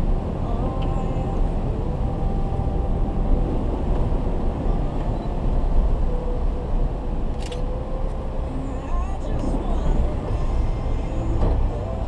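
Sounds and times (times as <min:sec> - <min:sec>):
vehicle driving through floodwater: 0:00.0 - 0:12.0.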